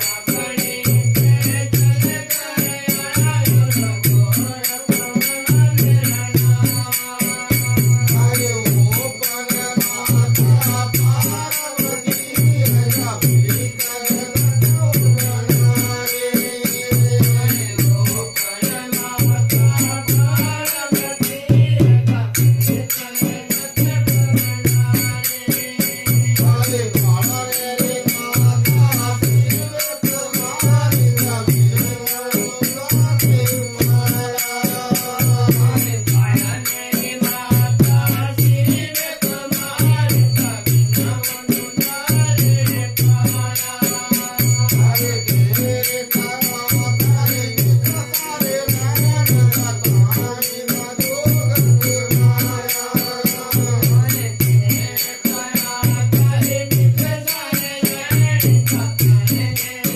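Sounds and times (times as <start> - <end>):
fast rattling percussion: 0.0 - 59.9
men singing: 0.0 - 59.9.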